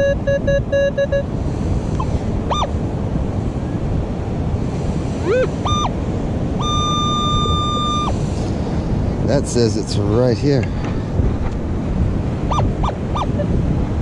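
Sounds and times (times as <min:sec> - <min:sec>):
metal detector beeps: 0:00.0 - 0:01.3, 0:02.5 - 0:02.7, 0:05.2 - 0:05.9, 0:06.6 - 0:08.1, 0:12.5 - 0:13.5
wind: 0:00.0 - 0:14.0.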